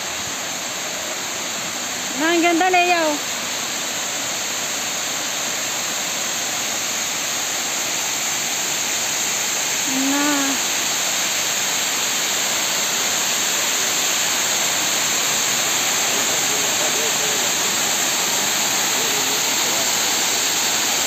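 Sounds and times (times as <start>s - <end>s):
water rushing down a dam spillway: 0.0s - 21.0s
person humming: 9.9s - 10.7s.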